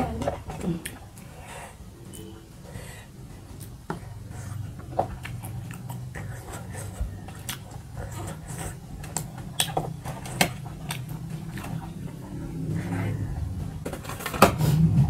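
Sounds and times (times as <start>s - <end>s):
fingers mixing food on metal plates: 0.0s - 14.6s
steady low hum: 0.0s - 15.0s
chewing with wet mouth clicks: 3.5s - 13.2s.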